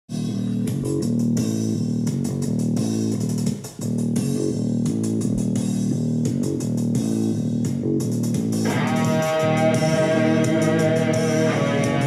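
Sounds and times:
rock music with guitar and bass: 8.2s - 12.0s.

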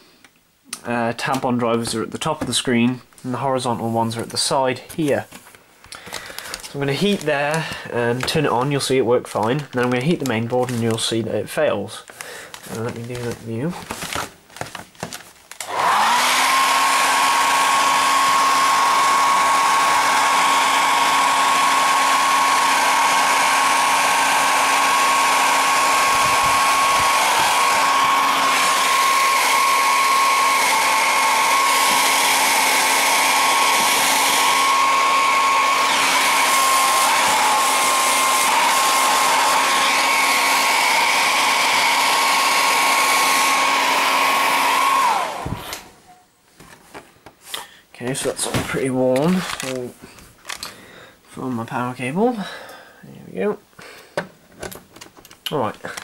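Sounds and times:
hair dryer running: 15.5s - 46.0s.

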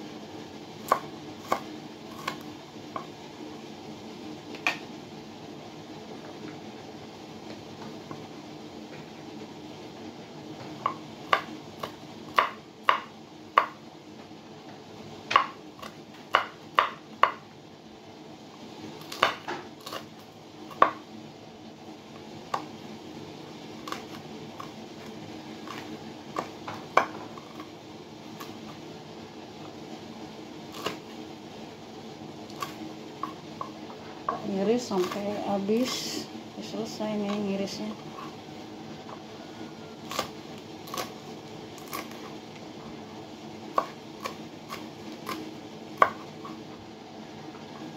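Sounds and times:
knife tapping on wooden board: 16.3s - 17.4s, 46.0s - 46.2s.

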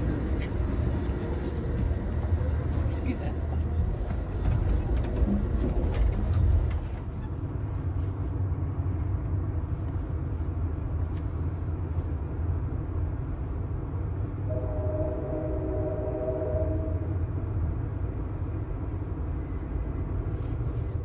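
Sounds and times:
train rumbling: 0.0s - 21.0s
knocks and clatter: 3.7s - 7.3s
held multi-pitch tone: 14.5s - 17.2s.

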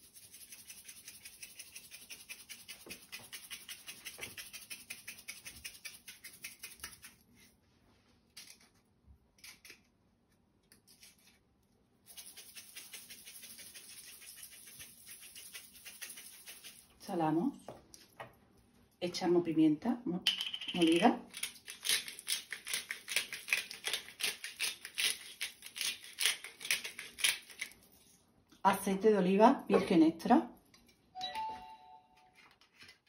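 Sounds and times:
salt shaker rattling: 0.0s - 7.2s, 12.0s - 17.0s, 20.3s - 27.8s.

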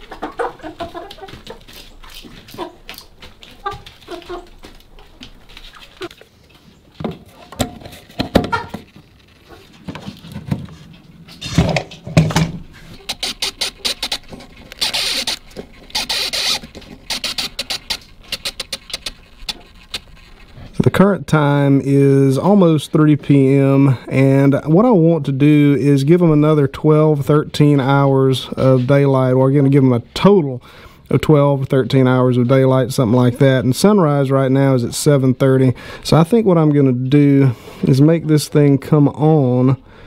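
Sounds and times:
knocks and thumps of handling: 7.0s - 9.0s, 9.8s - 12.7s.

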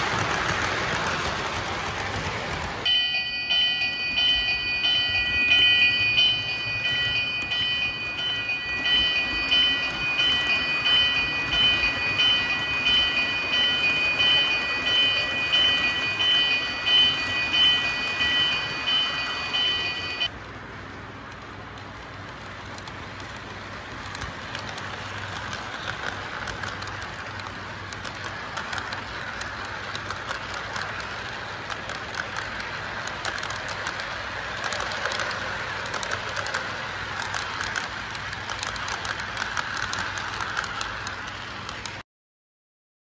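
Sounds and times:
model train rolling rattle: 0.0s - 42.0s
wheels clicking over rail joints: 0.0s - 42.0s.

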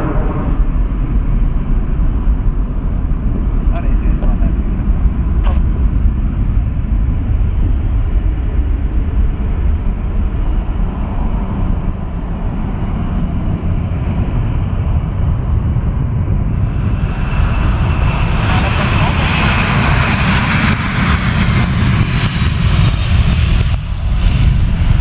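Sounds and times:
jet engines idling: 0.0s - 25.0s.

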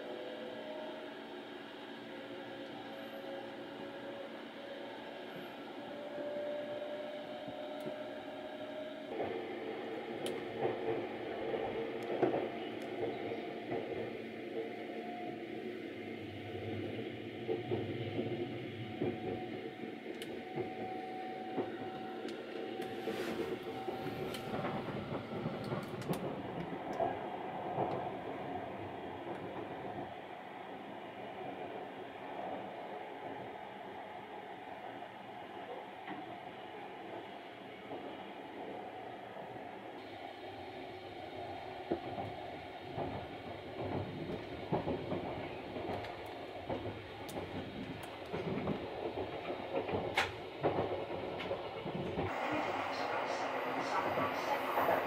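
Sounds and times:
train hum and rumble: 0.0s - 55.0s
faint clicks: 20.1s - 20.8s, 21.6s - 27.1s.

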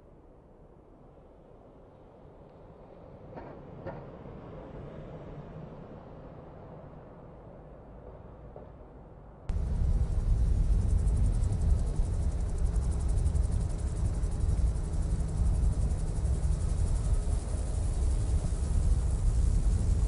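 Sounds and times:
car engine and road rumble: 9.5s - 20.0s.

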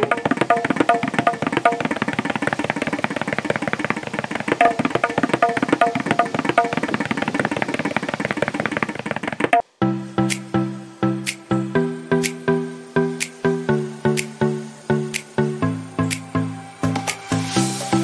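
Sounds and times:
tabla fast rhythm: 0.0s - 9.6s.

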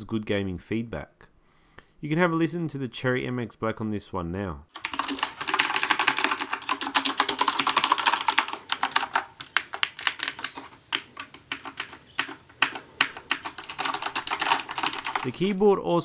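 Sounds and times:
typing on mechanical keyboard: 4.8s - 15.5s.

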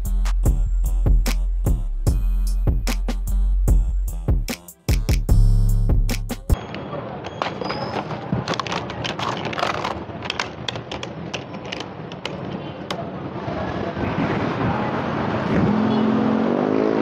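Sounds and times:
busy market background noise: 6.5s - 17.0s.

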